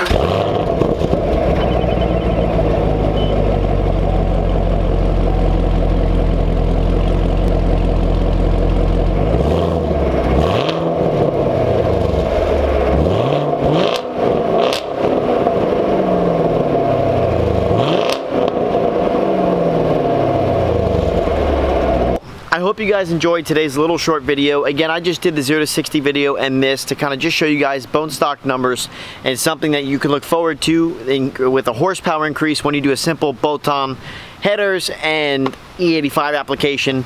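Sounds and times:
car engine idling and revving: 0:00.0 - 0:22.2.

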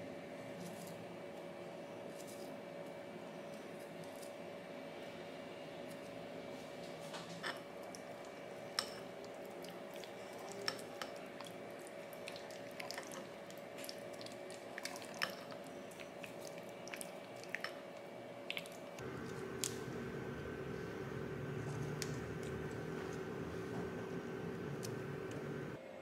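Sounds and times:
steady hum: 0:19.0 - 0:25.8.

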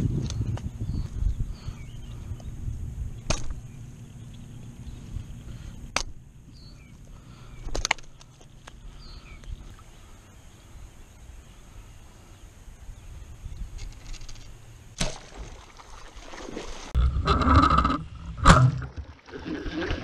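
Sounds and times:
faint bird chirps: 0:00.3 - 0:14.3.

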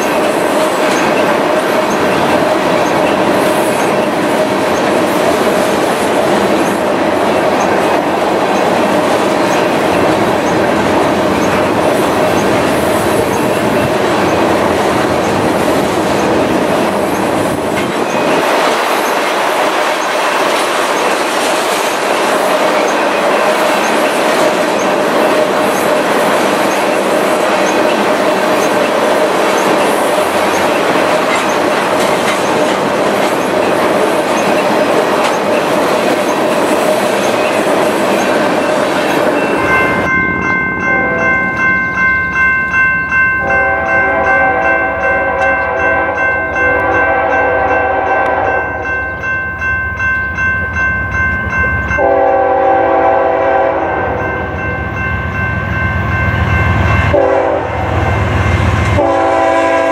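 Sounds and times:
train wheels clacking over rail joints: 0:00.0 - 0:40.1
diesel locomotive engine rumble: 0:00.0 - 0:59.9
locomotive air horn: 0:40.8 - 0:41.4, 0:43.4 - 0:48.8, 0:52.0 - 0:54.2, 0:57.1 - 0:58.1, 0:58.9 - 0:59.9.

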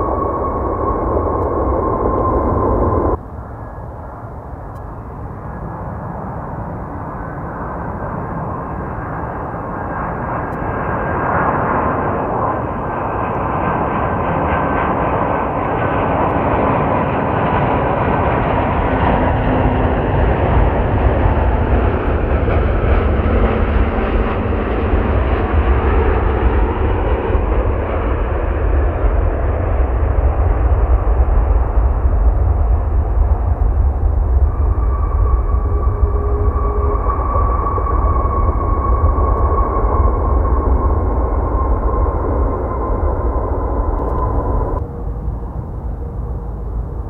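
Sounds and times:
deep rumble: 0:00.0 - 0:47.0
jet engines rushing: 0:00.0 - 0:47.0.

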